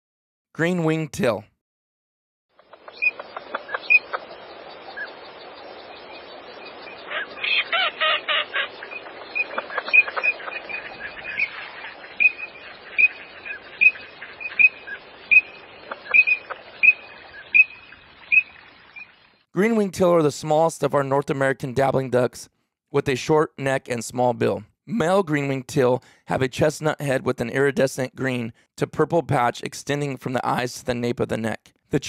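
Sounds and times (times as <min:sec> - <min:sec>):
duck whistled calls: 0:06.6 - 0:19.1.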